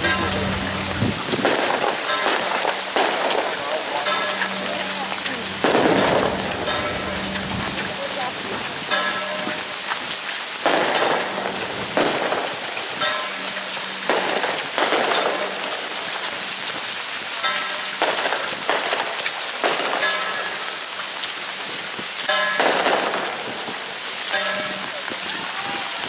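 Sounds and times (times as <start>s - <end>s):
short pitched sounds: 0.0s - 1.5s
heavy rain on plastic raincoats: 0.0s - 26.0s
rough crackling bursts: 0.0s - 26.0s.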